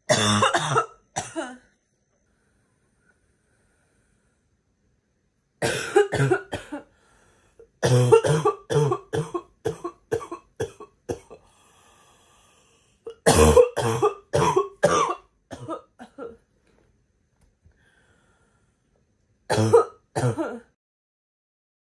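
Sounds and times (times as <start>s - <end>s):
girl's harsh barking cough: 0.1s - 1.6s, 5.6s - 6.9s, 7.8s - 11.4s, 13.2s - 16.4s, 19.5s - 20.7s.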